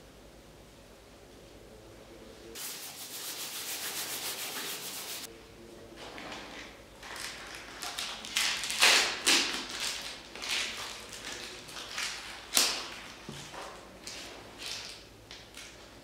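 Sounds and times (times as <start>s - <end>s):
sharp scrape: 2.6s - 5.3s
toothbrush scratching plastic wrap: 2.6s - 5.3s.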